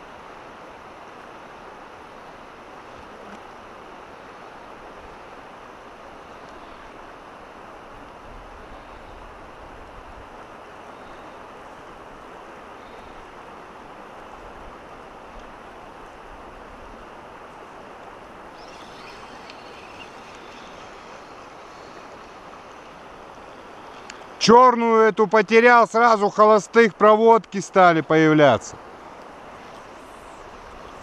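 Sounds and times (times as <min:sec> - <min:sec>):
river rushing over stones: 0:00.0 - 0:31.0
faint crackling: 0:18.5 - 0:24.4.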